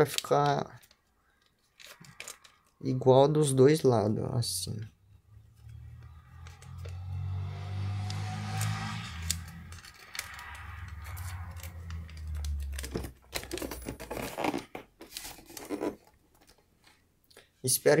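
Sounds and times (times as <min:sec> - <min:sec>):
paper rustling and crinkling: 0:11.2 - 0:16.9.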